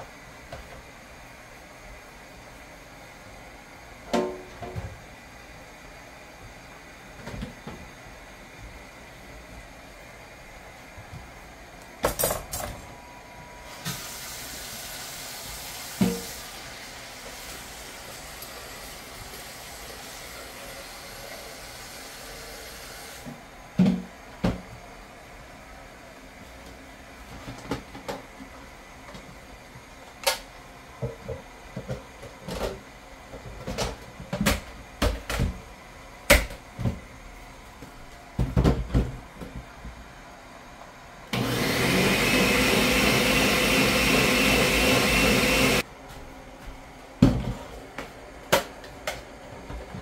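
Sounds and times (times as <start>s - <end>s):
kitchen items knocking and clattering: 12.0s - 12.9s, 38.4s - 39.6s
blender running: 13.7s - 23.3s, 41.3s - 45.8s.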